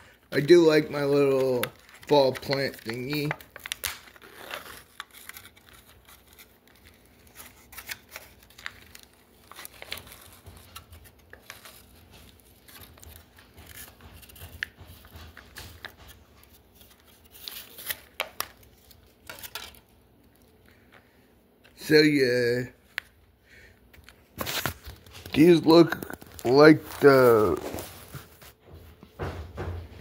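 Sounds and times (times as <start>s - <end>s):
snack packaging crinkling and tearing: 0.4s - 13.9s, 24.0s - 28.4s.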